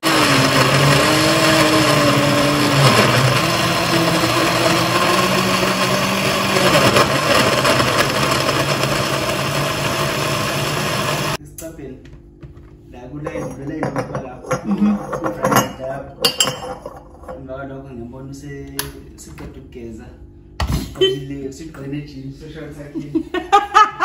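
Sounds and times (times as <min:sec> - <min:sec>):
blender motor running: 0:00.0 - 0:11.4.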